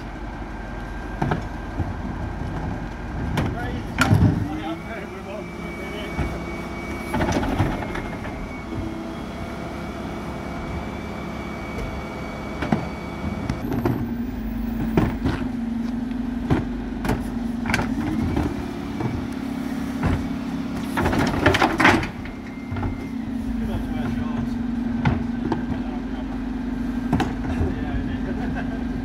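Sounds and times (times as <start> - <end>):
wheelie bins clattering: 0.0 - 8.9, 16.4 - 26.2, 27.0 - 28.8
refuse truck engine humming: 0.0 - 29.0
bin lift clunks: 6.1 - 8.6, 19.9 - 23.1.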